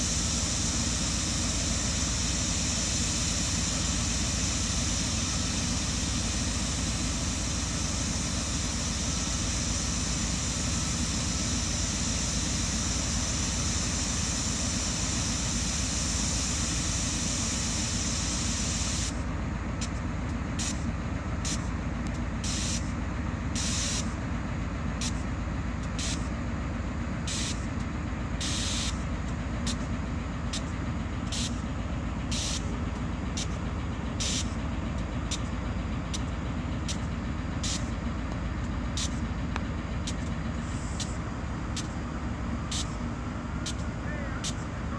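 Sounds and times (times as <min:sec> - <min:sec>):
hiss: 0:00.0 - 0:19.2, 0:23.6 - 0:24.1, 0:27.3 - 0:27.6, 0:28.4 - 0:29.0, 0:34.2 - 0:34.5, 0:37.6 - 0:37.9
locomotive engine rumbling: 0:00.0 - 0:44.9.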